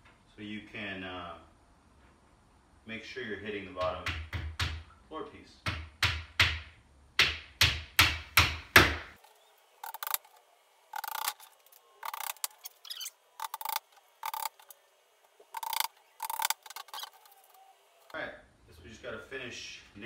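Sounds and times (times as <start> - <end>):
hammer driving nails into panel: 5.7 - 9.1.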